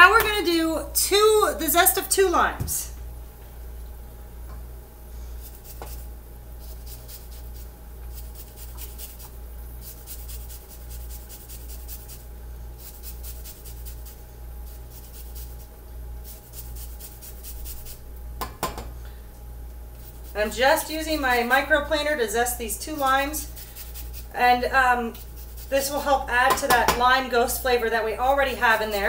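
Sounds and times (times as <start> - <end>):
steady low hum: 0.0 - 29.0
grater scraping lime zest: 5.4 - 18.0, 20.0 - 27.0.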